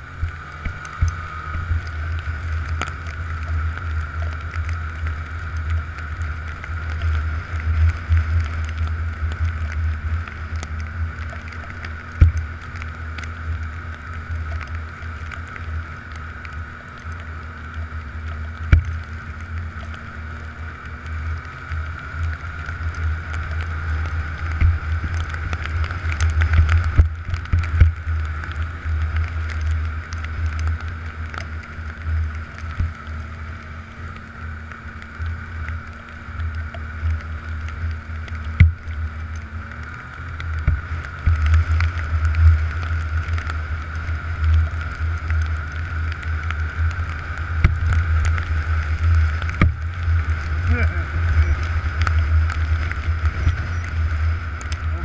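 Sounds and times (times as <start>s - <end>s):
snowmobile engine running: 0.0s - 55.0s.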